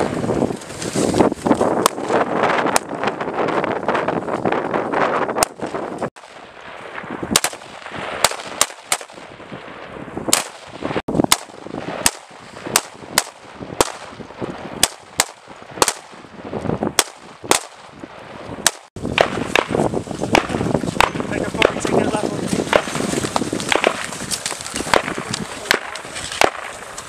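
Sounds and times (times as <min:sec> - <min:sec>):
rifle single shots: 0:05.4 - 0:09.4, 0:10.3 - 0:14.2, 0:14.8 - 0:16.2, 0:17.0 - 0:18.0, 0:23.7 - 0:24.1, 0:24.9 - 0:26.7.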